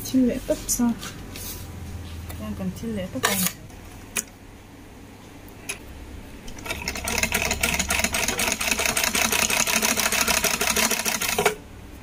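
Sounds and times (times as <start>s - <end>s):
sewing machine stitching: 6.6s - 11.6s.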